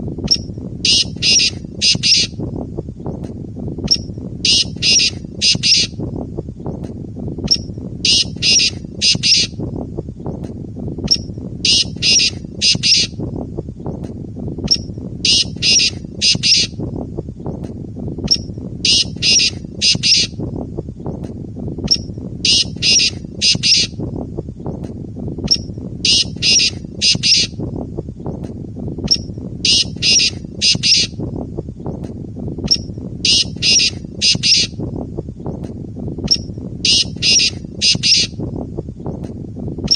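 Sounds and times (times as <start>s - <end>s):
francolin territorial call: 0.3s - 2.4s, 3.9s - 6.0s, 7.5s - 9.6s, 11.1s - 13.2s, 14.7s - 16.8s, 18.3s - 20.4s, 21.9s - 24.0s, 25.5s - 27.6s, 29.1s - 31.2s, 32.7s - 34.8s, 36.3s - 38.4s.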